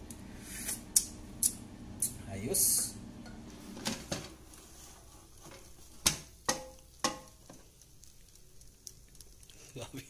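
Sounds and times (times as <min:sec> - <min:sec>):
air fryer basket clacks: 0:02.8 - 0:04.4.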